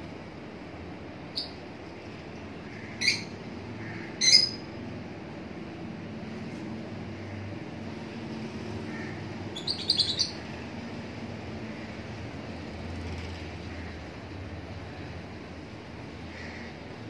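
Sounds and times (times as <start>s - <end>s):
steady low hum: 0.0s - 17.0s
bird chirping: 1.3s - 1.6s, 3.0s - 3.4s, 4.2s - 4.6s, 9.5s - 10.4s.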